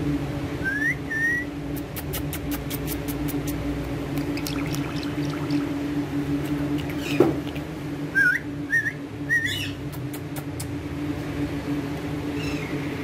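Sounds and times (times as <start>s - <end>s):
steady low hum: 0.0s - 13.0s
parakeet chirping: 4.2s - 5.7s, 6.7s - 9.8s, 12.4s - 12.9s.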